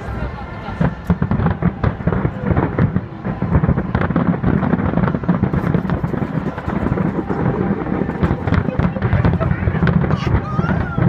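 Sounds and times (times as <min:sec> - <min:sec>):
fireworks crackling: 0:00.7 - 0:11.0
fireworks shells bursting: 0:04.0 - 0:10.3.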